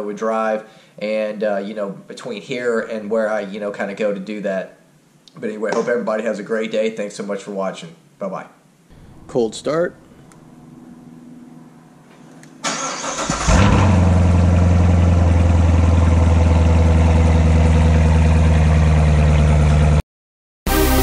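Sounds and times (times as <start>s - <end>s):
starter motor cranking: 12.7s - 14.0s
car engine revving and idling: 13.2s - 20.0s.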